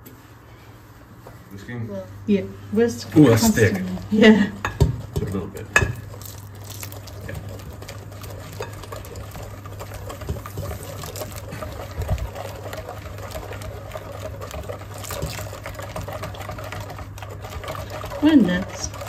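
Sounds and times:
wire whisk beating in glass bowl: 3.4 - 19.0
milk pouring into bowl: 4.6 - 19.0.

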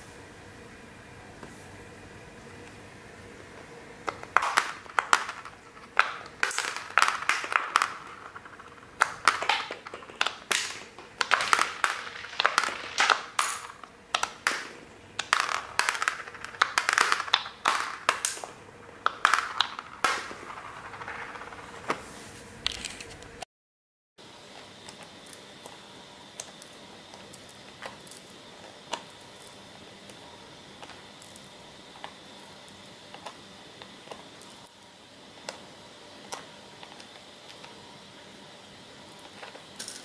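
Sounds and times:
candies clicking on a table: 4.0 - 22.0, 30.8 - 34.8.

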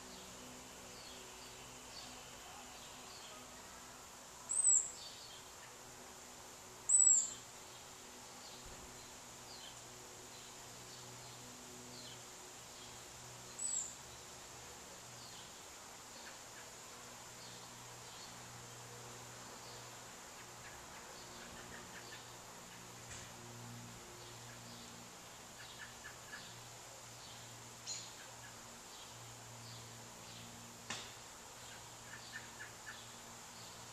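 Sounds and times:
faint insect-like buzz: 0.0 - 33.9
faint bird chirps: 4.4 - 5.8, 6.9 - 7.4
bird high-pitched calls: 6.9 - 7.4.

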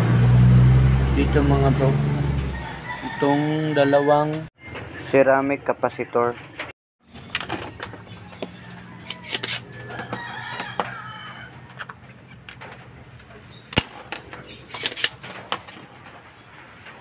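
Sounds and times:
rooster crowing: 2.5 - 4.5, 8.2 - 11.8.

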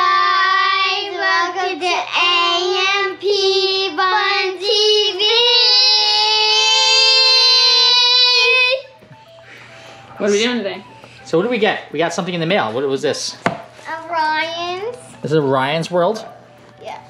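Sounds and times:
children singing: 0.0 - 9.0.

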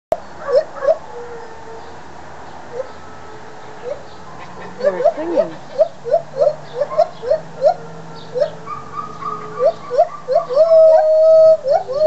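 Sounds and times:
gibbons whooping: 4.5 - 7.8.

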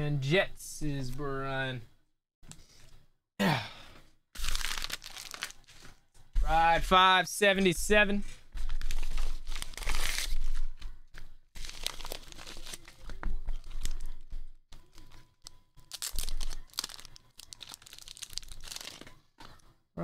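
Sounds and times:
paper envelope tearing: 4.4 - 5.8, 8.8 - 10.5, 11.6 - 13.0
paper crinkling and rustling: 4.4 - 6.0, 8.6 - 14.2, 14.8 - 19.6.

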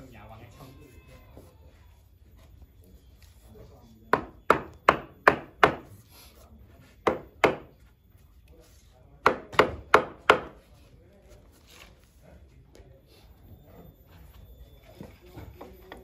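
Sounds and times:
hammer striking wooden wedges: 4.1 - 5.9, 7.0 - 7.7, 9.2 - 10.6.

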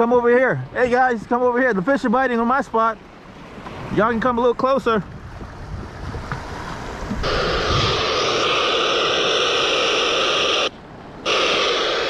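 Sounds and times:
static hiss: 7.2 - 12.0.

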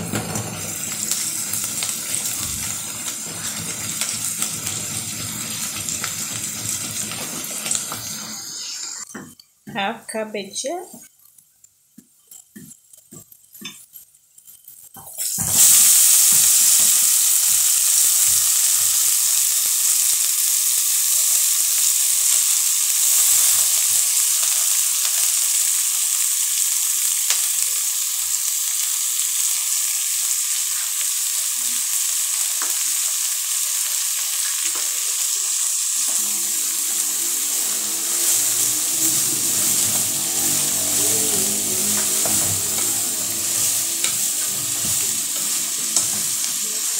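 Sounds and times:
cabbage sizzling in hot oil: 0.0 - 9.3, 10.6 - 46.9
wooden spoon stirring and scraping: 37.1 - 46.9.

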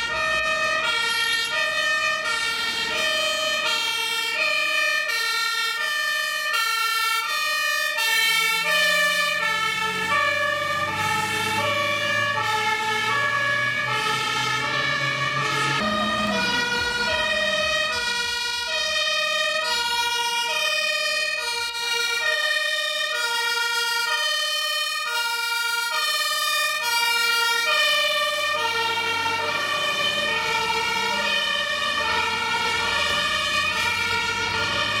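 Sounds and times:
two-tone fire engine sirens: 0.0 - 35.0
low vehicle rumble: 8.3 - 19.6, 28.0 - 35.0.

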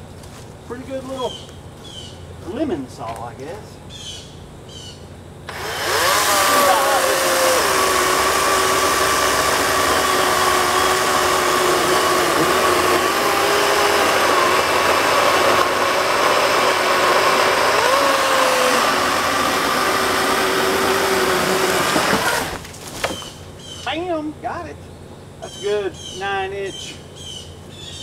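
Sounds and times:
electric chainsaw motor whine: 5.5 - 23.3
chain rasping in wood: 19.6 - 22.6.

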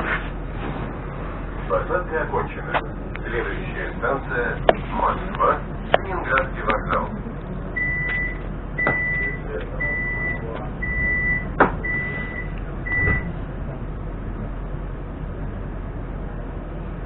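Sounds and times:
short high warning beeps: 7.8 - 13.2.

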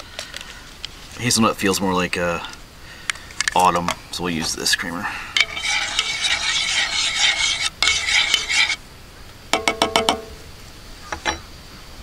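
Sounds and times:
spoon stirring in a cup: 5.4 - 8.8.

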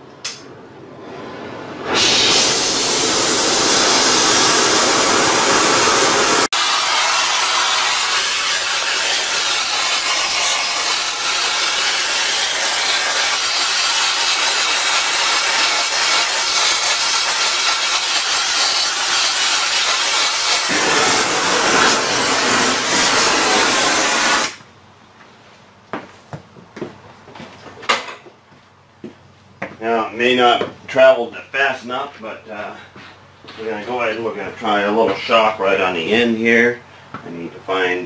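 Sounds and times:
torch flame hissing: 1.8 - 24.6.

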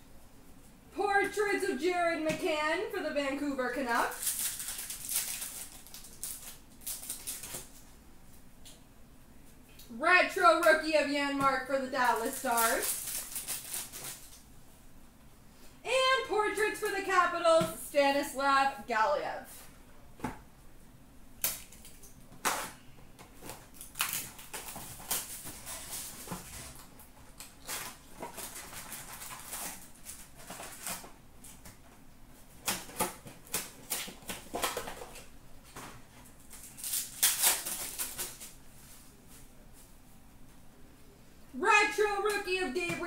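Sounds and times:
foil packs crinkling: 4.0 - 7.9, 12.0 - 14.4, 21.4 - 31.7, 32.4 - 35.3, 36.3 - 39.0.

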